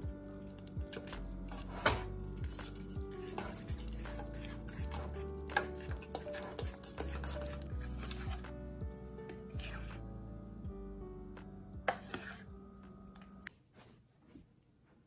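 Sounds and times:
music with steady beat: 0.0s - 10.0s
spoon scraping metal saucepan: 0.8s - 8.4s, 9.3s - 10.0s, 11.9s - 12.5s.

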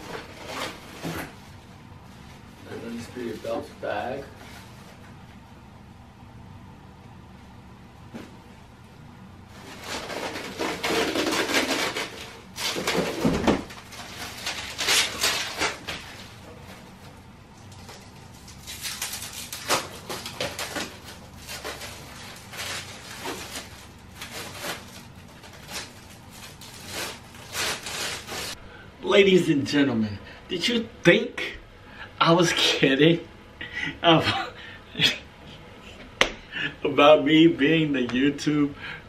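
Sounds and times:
plastic and bubble wrap crinkling: 0.0s - 1.2s, 9.5s - 28.6s.

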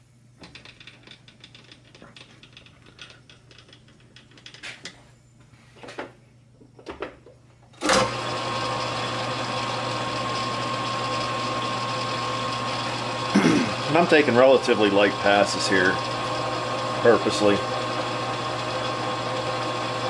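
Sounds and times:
metal lathe humming and whining: 7.8s - 20.0s.

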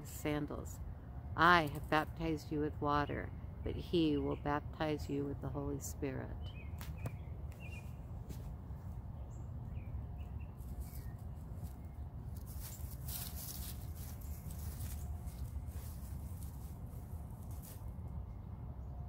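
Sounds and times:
bird chirps: 6.4s - 8.0s.

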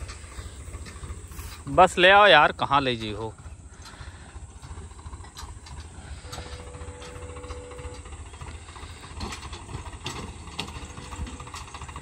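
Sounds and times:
tractor diesel engine under load: 0.0s - 12.0s
faint steady tone: 3.4s - 12.0s.

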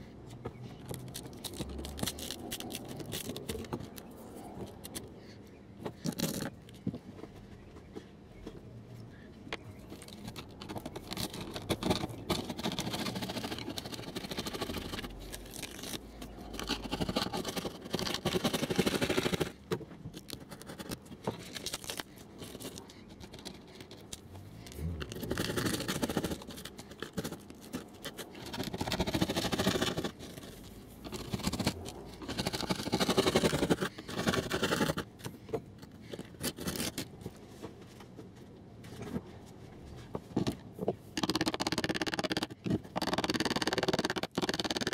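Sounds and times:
scratchy scraping: 0.8s - 5.1s, 9.9s - 35.4s.

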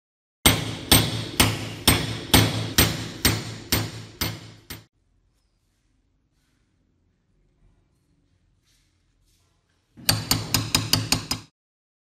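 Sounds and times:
hammer striking chisel on metal: 0.4s - 4.9s, 10.0s - 11.5s.

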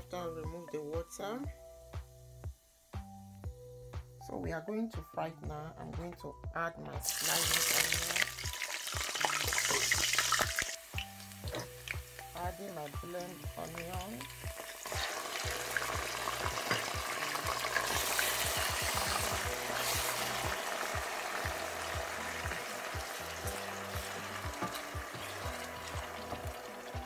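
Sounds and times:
paste sizzling in hot oil: 7.0s - 27.0s.

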